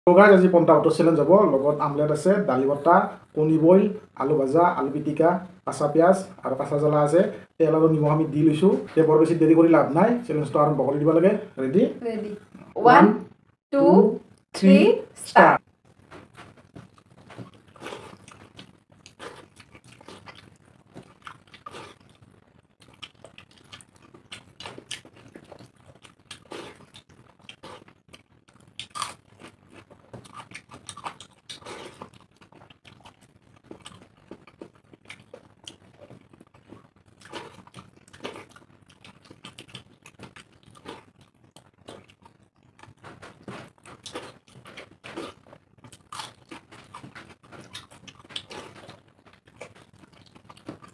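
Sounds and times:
wet chewing smacks: 0:16.4 - 0:50.9.

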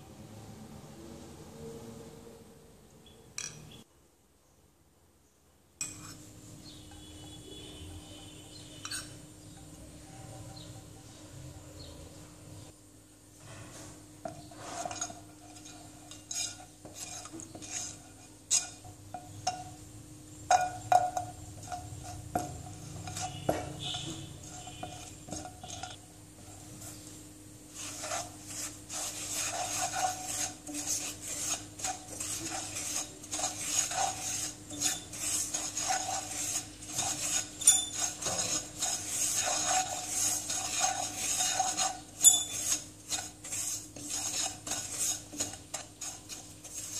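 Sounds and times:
spatula scraping powder in pan: 0:13.4 - 0:19.8, 0:20.5 - 0:46.9.

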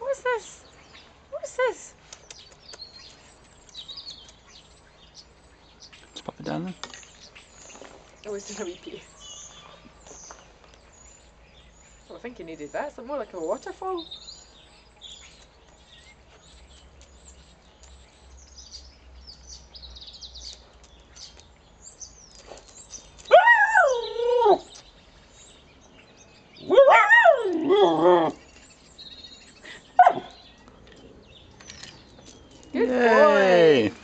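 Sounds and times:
puppy howling: 0:23.3 - 0:24.7, 0:26.6 - 0:28.4.

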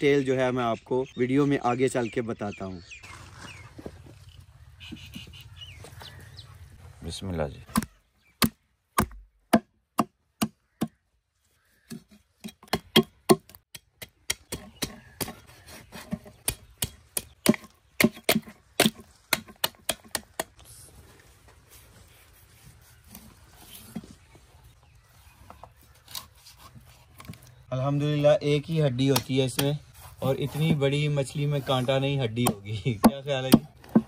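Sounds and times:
cleaver chopping on wooden block: 0:07.7 - 0:11.0, 0:11.9 - 0:15.4, 0:16.0 - 0:20.5.

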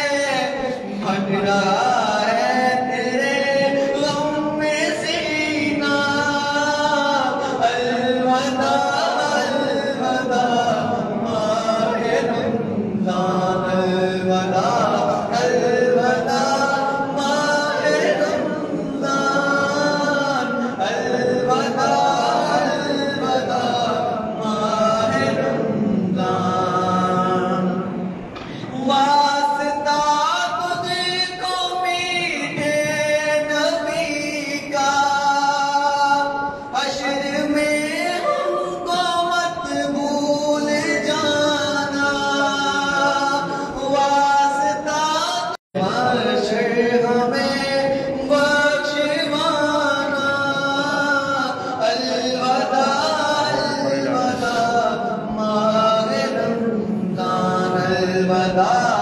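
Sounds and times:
men chanting together: 0:00.0 - 0:28.0, 0:45.8 - 0:59.0.

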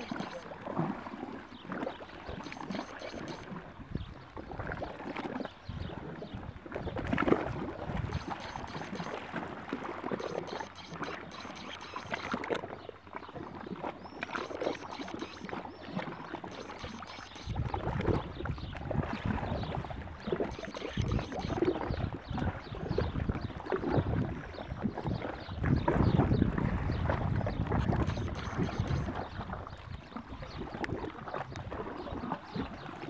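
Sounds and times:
wind rumble on microphone: 0:03.7 - 0:09.0, 0:16.8 - 0:33.0.

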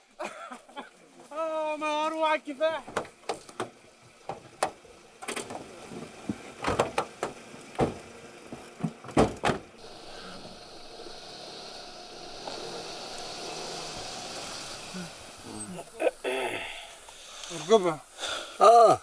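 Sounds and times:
steady hiss: 0:00.0 - 0:19.0
car doors shutting: 0:02.8 - 0:17.8
knocks and thuds: 0:06.2 - 0:08.1, 0:08.8 - 0:09.6.

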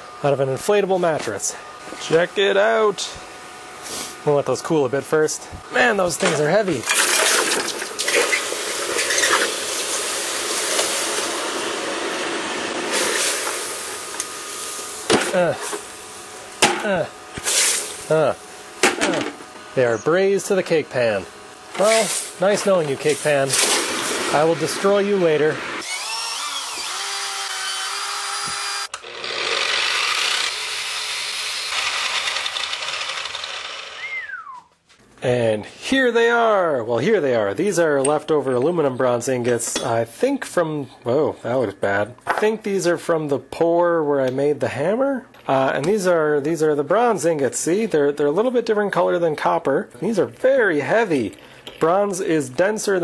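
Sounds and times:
hot metal sizzling in water: 0:06.9 - 0:11.3
drum sander grinding metal: 0:21.6 - 0:34.3
electric drill abrasive wheel whine: 0:24.2 - 0:34.4.

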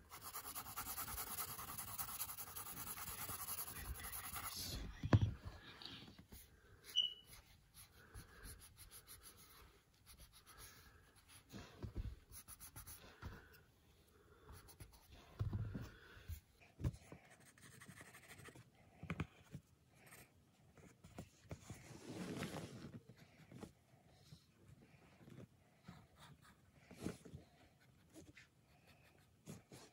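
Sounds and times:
pencil and eraser scratching paper: 0:00.0 - 0:04.9, 0:06.8 - 0:13.5, 0:17.2 - 0:18.7.

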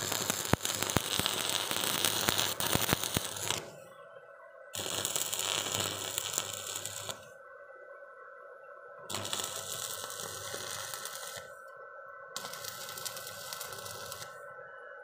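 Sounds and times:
welding arc crackling: 0:00.0 - 0:03.8, 0:04.8 - 0:07.3, 0:09.1 - 0:11.6, 0:12.4 - 0:14.4.

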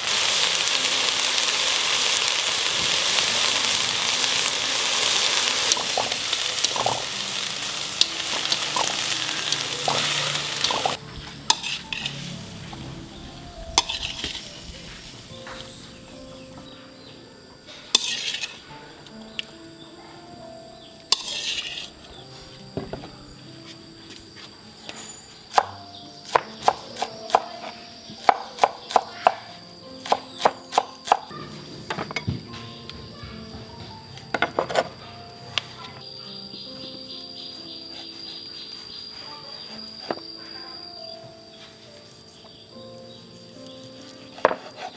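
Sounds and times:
food sizzling in a pan: 0:00.0 - 0:17.1, 0:17.9 - 0:18.7, 0:21.1 - 0:22.8
faint steady high tone: 0:38.1 - 0:42.2.

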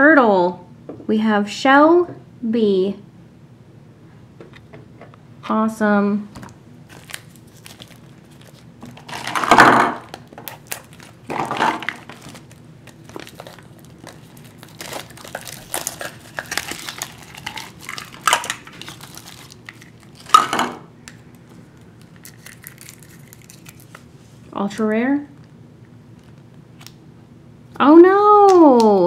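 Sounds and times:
plastic wrapper crinkling: 0:06.4 - 0:24.2.

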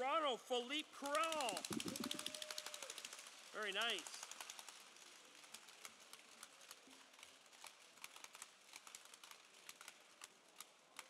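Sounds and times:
trading cards clicking: 0:01.0 - 0:04.7.

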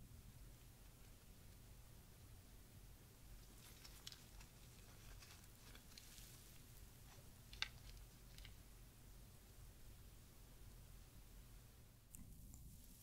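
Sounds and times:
muffin crackling as torn: 0:03.4 - 0:08.6.

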